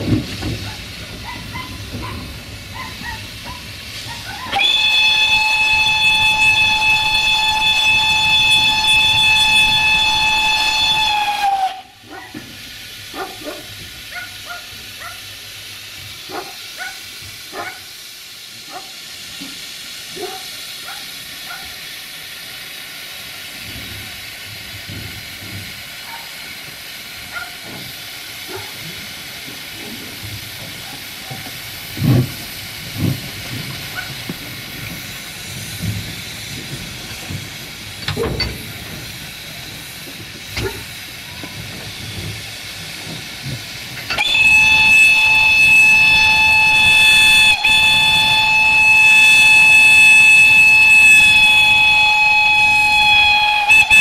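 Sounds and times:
steam hissing: 0.0 - 54.0
steam whistle blast: 4.0 - 12.0, 44.0 - 54.0
locomotive knocks: 30.2 - 44.4.

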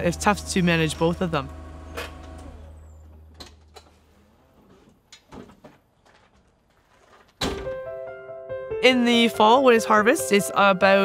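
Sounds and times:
forklift engine hum: 0.0 - 4.6.

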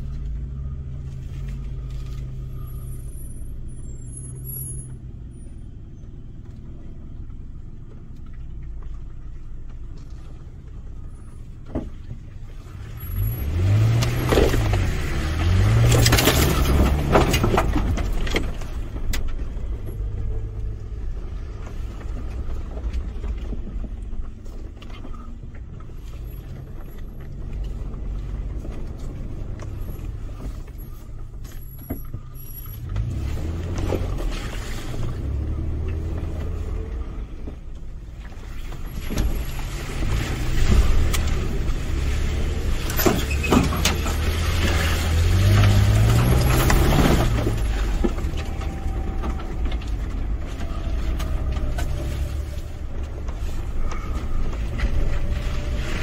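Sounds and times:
tyres rushing through mud: 0.0 - 56.0
truck engine revving: 12.8 - 22.5, 32.2 - 37.5, 38.9 - 56.0.

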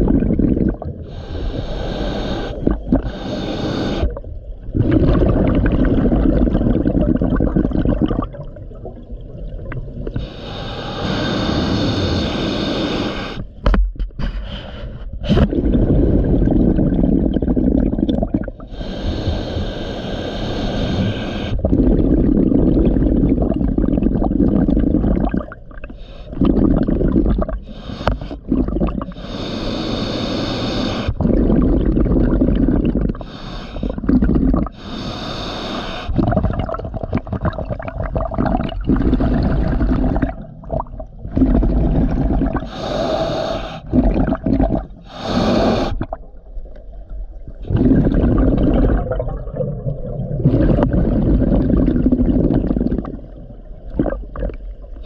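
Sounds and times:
gurgling exhaled bubbles: 0.0 - 12.4, 15.2 - 19.4, 20.7 - 29.4, 30.7 - 34.9, 36.1 - 55.0
hissing regulator inhalations: 1.0 - 4.2, 10.2 - 13.6, 18.6 - 21.6, 27.6 - 31.3, 33.1 - 36.3, 42.5 - 44.2, 44.9 - 46.2.

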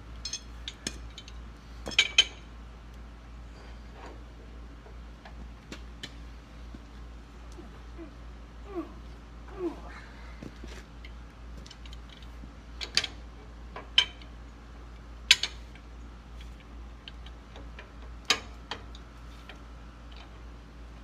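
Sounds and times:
wrench clinking on metal nut: 0.2 - 2.4.

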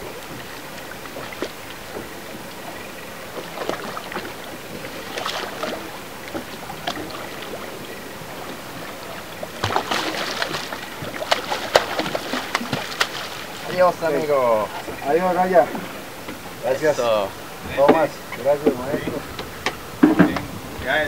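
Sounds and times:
water sloshing against boat: 0.0 - 21.0
sharp splashes: 3.3 - 13.8.

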